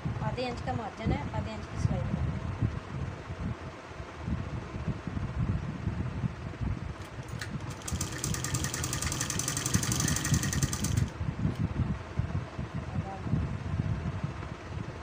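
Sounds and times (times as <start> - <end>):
steady low rumble: 0.0 - 15.0
sewing machine stitching: 7.1 - 11.1.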